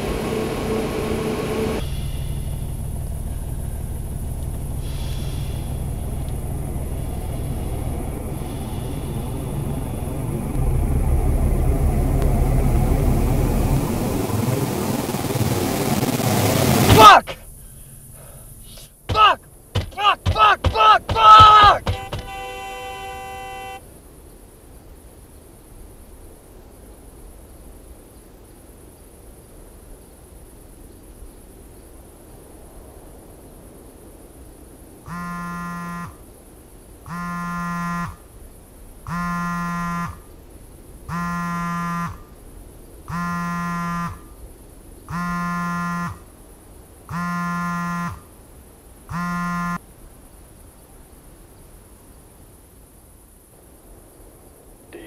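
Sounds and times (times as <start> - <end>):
low background hum: 0.0 - 14.1
electronic buzzer beeps: 21.6 - 23.8, 35.1 - 36.2, 37.1 - 38.2, 39.1 - 40.2, 41.1 - 42.3, 43.1 - 44.3, 45.1 - 46.2, 47.1 - 48.2, 49.1 - 49.8.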